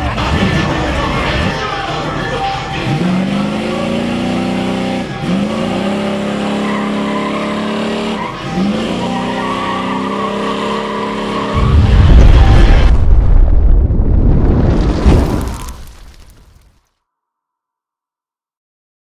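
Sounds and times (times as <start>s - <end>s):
engine revving high: 0.0s - 12.5s
tyres squealing: 4.8s - 11.6s.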